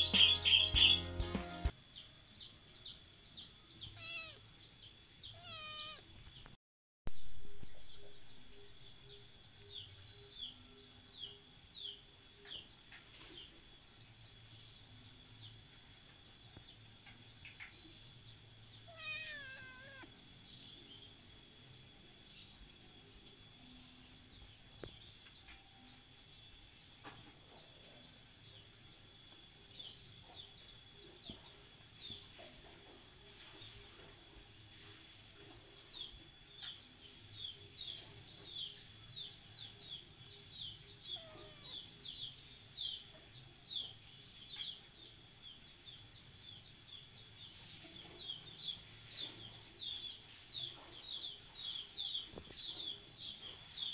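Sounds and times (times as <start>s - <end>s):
kittens meowing: 3.9s - 4.4s, 5.3s - 6.1s, 18.9s - 20.1s, 41.0s - 42.0s.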